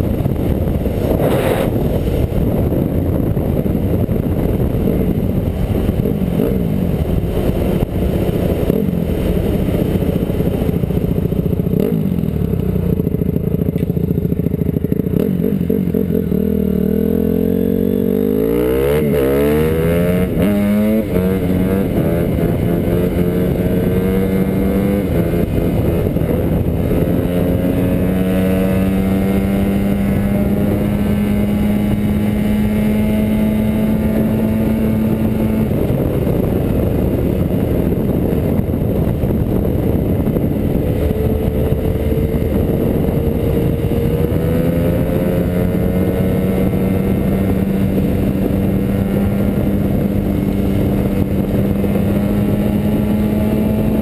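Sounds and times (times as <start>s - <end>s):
dirt bike engine revving: 14.7s - 36.4s.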